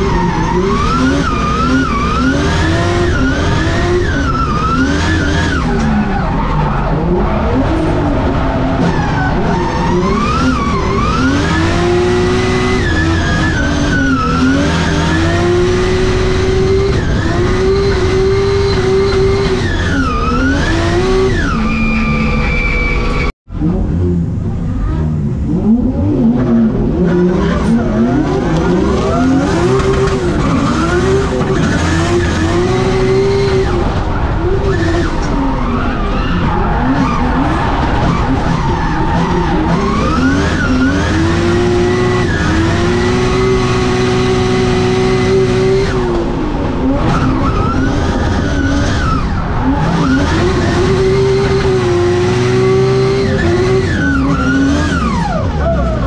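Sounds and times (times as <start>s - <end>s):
car engine revving: 0.0s - 56.0s
tyres spinning and sliding: 24.9s - 56.0s.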